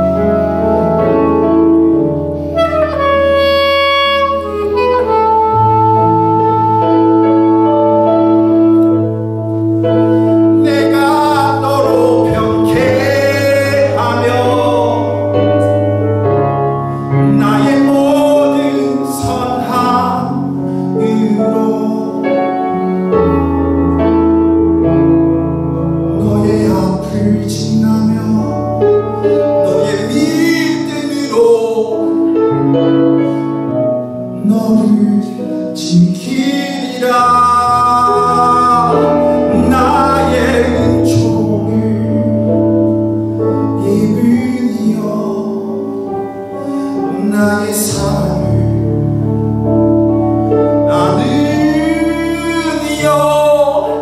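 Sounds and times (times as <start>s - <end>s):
sustained keyboard chords: 0.0s - 54.0s
man singing into microphone: 10.5s - 16.0s, 17.0s - 23.3s, 26.1s - 33.4s, 34.3s - 49.3s, 50.6s - 54.0s.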